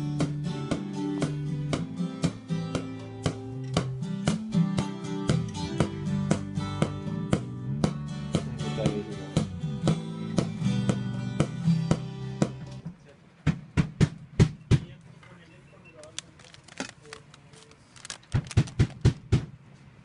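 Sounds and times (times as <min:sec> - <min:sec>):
acoustic guitar strumming: 0:00.0 - 0:12.8.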